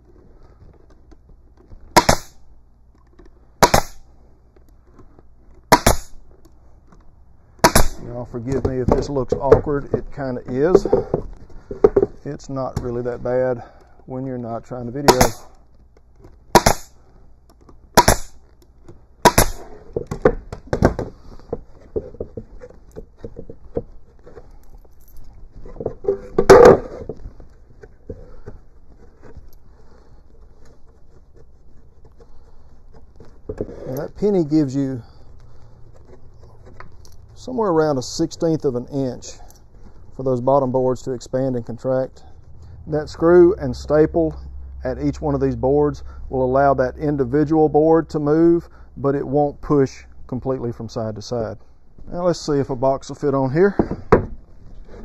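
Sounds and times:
pneumatic stapler firing: 1.9s - 2.4s, 3.6s - 4.0s, 5.7s - 6.2s, 7.6s - 8.0s, 16.5s - 16.9s, 18.0s - 18.4s, 19.2s - 19.7s.

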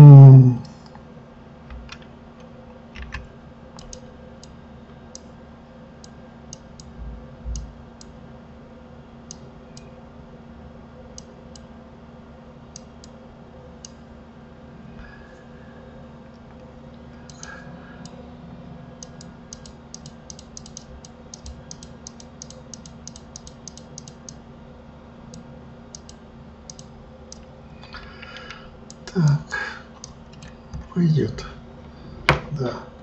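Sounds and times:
low electrical hum: 0.0s - 33.0s
computer mouse clicks: 3.0s - 5.3s, 19.0s - 24.4s, 25.3s - 29.4s.

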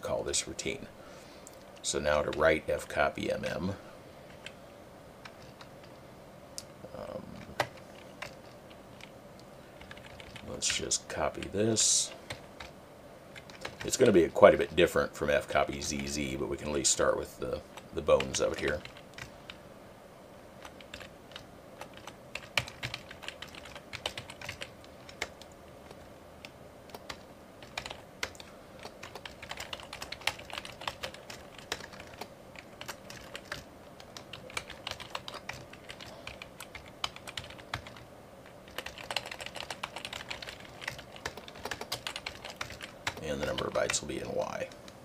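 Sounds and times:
typing on computer keyboard: 7.4s - 9.1s, 9.8s - 10.8s, 13.4s - 14.0s, 18.1s - 19.6s, 20.6s - 38.0s, 38.7s - 44.0s.

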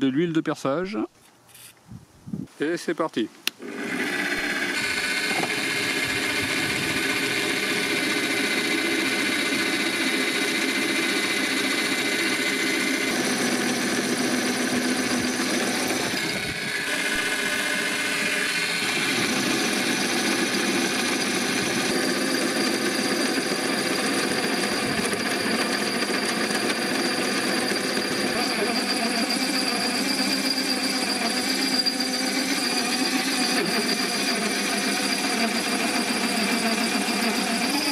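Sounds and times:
drill press drilling into steel: 3.6s - 37.9s.

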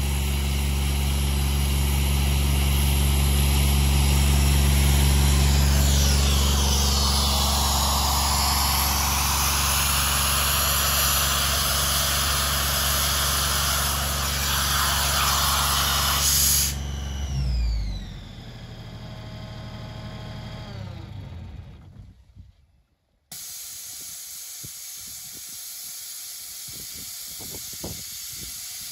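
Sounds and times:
diesel compressor running: 0.0s - 22.0s, 23.3s - 28.9s
air venting with falling whine: 3.9s - 17.4s
loud air hiss: 4.0s - 16.9s, 23.3s - 28.9s.

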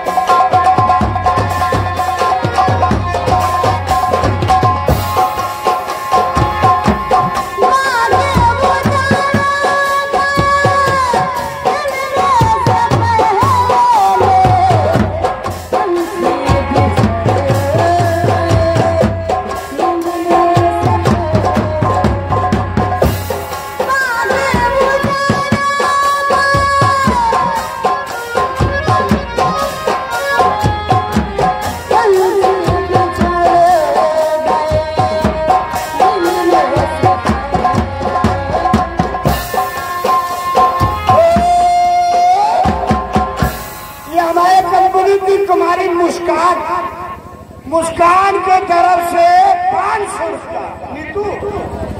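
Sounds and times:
hand drums steady beat: 0.0s - 45.1s
melody of bending held notes: 0.0s - 48.9s.

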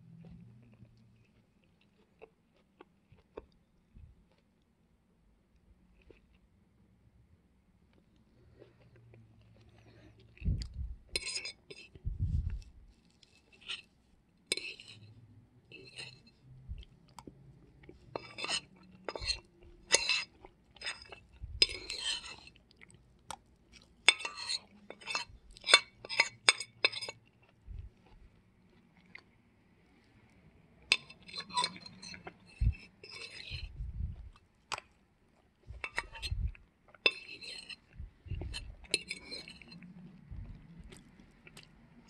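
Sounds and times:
chewing: 0.0s - 4.5s, 7.9s - 29.4s, 30.3s - 42.0s
fork scraping plate: 11.1s - 12.6s, 13.2s - 13.9s, 14.5s - 16.4s, 18.1s - 22.6s, 24.0s - 27.2s, 30.9s - 34.3s, 35.7s - 41.0s.

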